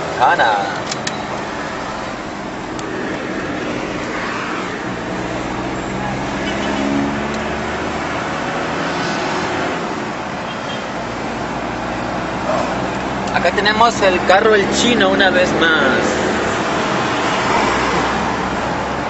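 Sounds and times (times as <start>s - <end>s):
vehicle engine and tyre noise: 0.0s - 19.0s.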